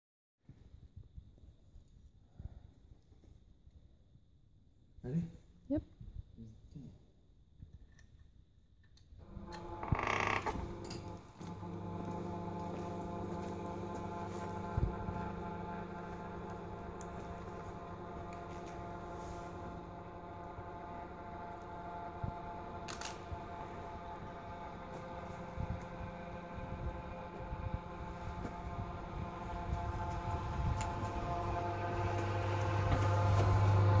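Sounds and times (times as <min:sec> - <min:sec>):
steady mechanical hum: 0:09.2 - 0:34.0.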